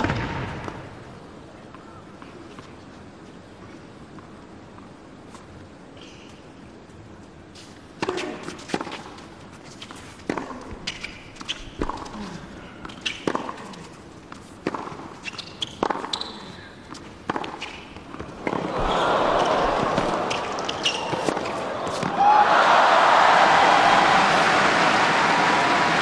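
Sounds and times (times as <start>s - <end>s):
tennis ball bouncing: 12.8s - 13.6s, 14.4s - 22.2s
crowd cheering: 18.4s - 26.0s.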